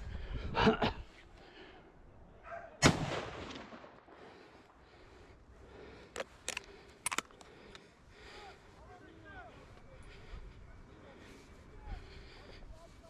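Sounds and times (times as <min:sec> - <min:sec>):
loud gunshot echoing: 0:02.8 - 0:04.0.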